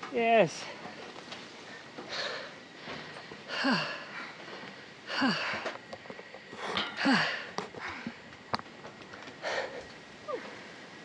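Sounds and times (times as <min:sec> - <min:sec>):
person breathing heavily: 0:01.9 - 0:08.3, 0:09.4 - 0:10.8.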